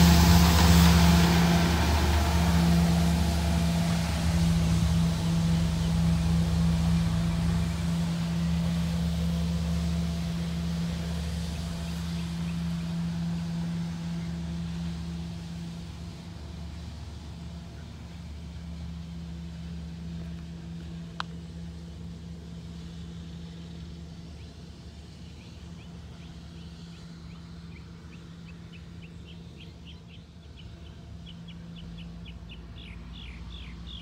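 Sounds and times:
truck engine droning: 0:00.0 - 0:34.0
bird chirping: 0:25.2 - 0:34.0.

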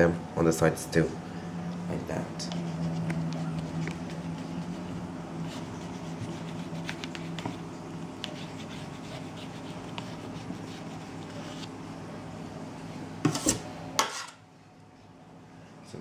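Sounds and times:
low steady hum: 0:00.0 - 0:16.0
spatula scraping buttercream: 0:02.4 - 0:11.7.

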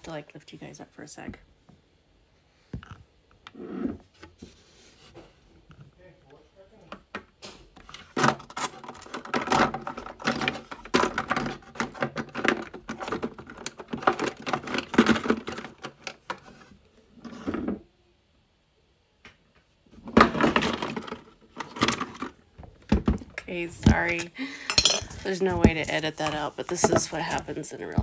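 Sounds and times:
plastic containers clattering: 0:07.0 - 0:17.8, 0:19.9 - 0:28.0.

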